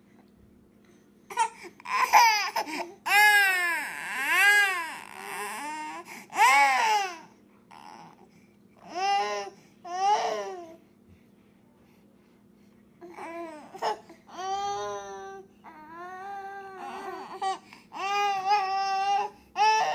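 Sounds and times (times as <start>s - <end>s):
baby crying: 1.3s - 8.2s, 13.0s - 19.9s.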